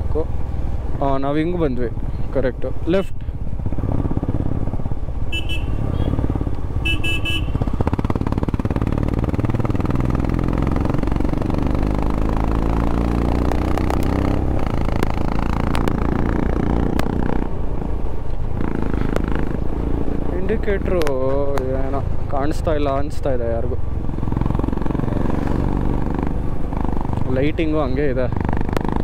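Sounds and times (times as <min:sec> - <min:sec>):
motorcycle engine running: 0:03.2 - 0:29.0
vehicle horn beeps: 0:05.3 - 0:06.2, 0:06.8 - 0:07.6.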